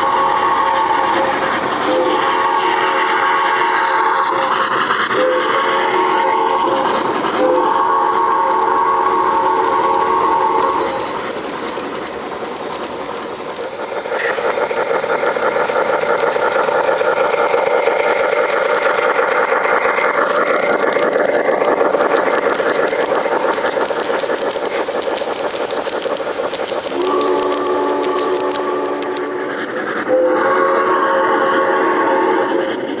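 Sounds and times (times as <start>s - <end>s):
train whistle: 0.0s - 11.2s, 26.9s - 29.4s, 30.0s - 32.8s
model train motor whir: 0.0s - 33.0s
wheels clattering on rails: 0.0s - 33.0s.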